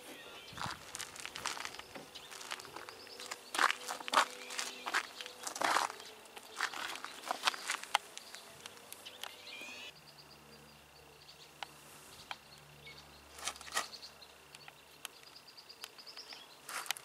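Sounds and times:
thin high tone: 0.0s - 11.4s
faint birdsong: 0.0s - 17.0s.

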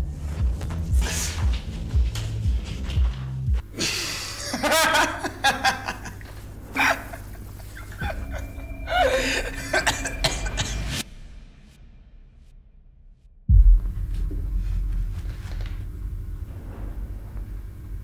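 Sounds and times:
background music: 0.0s - 12.6s
person laughing: 3.8s - 10.6s.

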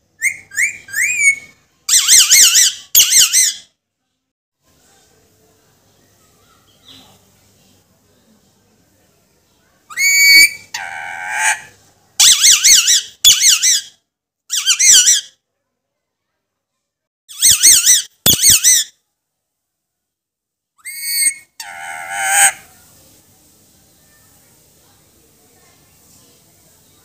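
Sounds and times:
parakeet squawking: 0.2s - 3.6s, 10.0s - 13.8s, 14.5s - 15.2s, 17.3s - 18.9s, 20.8s - 22.7s.

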